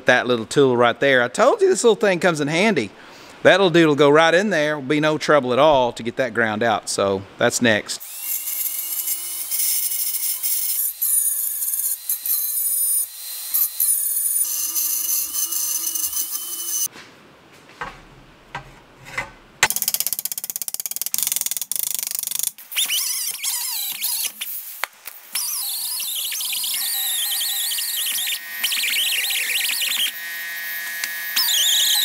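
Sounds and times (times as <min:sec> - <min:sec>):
rotary grinder whining: 0:08.0 - 0:16.9, 0:25.4 - 0:32.0.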